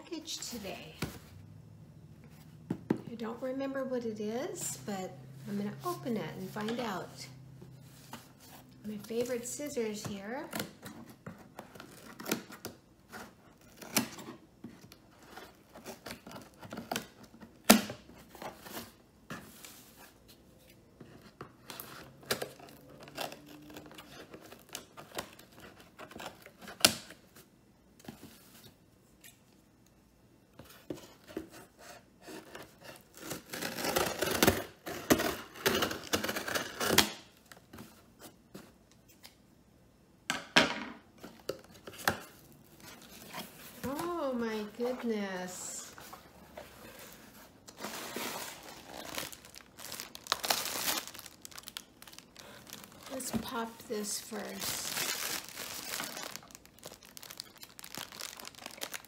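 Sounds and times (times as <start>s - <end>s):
tape tearing: 32.4s - 37.6s, 41.5s - 59.0s.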